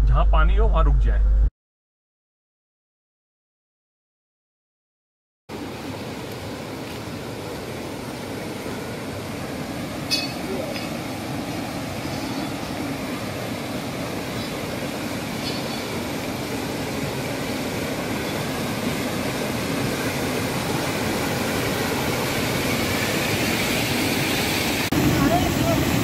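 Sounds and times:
floodwater rushing over rocks: 5.5 - 26.0.

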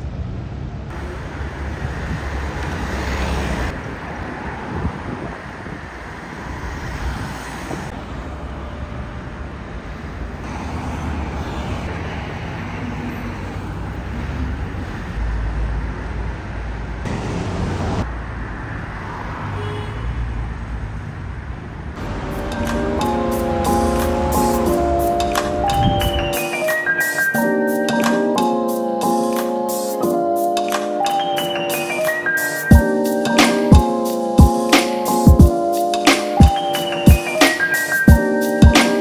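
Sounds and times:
cars driving past: 0.0 - 29.5.

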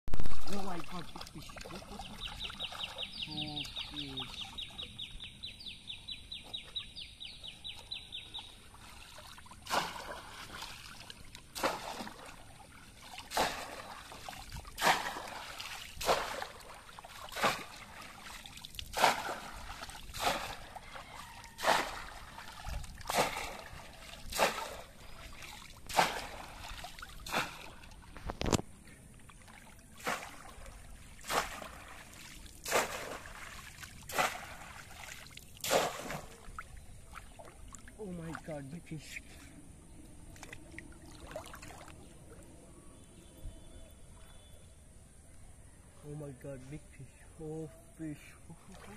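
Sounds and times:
fish trap splashing into water: 9.2 - 28.6, 30.0 - 37.6.

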